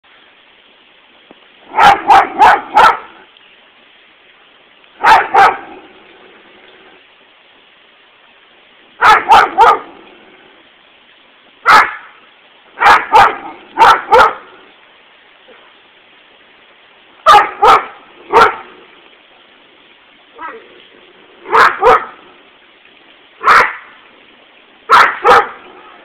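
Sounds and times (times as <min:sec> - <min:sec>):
dog barking: 0:01.7 - 0:03.2, 0:05.0 - 0:05.8, 0:09.0 - 0:10.0, 0:11.6 - 0:12.1, 0:12.8 - 0:14.5, 0:17.2 - 0:18.7, 0:21.4 - 0:22.2, 0:23.4 - 0:23.9, 0:24.9 - 0:26.0.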